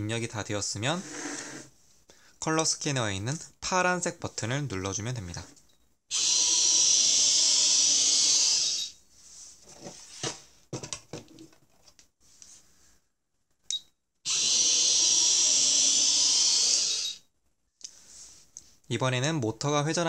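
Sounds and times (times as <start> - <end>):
toy car motor whirring: 6.1 - 8.9, 14.3 - 17.2.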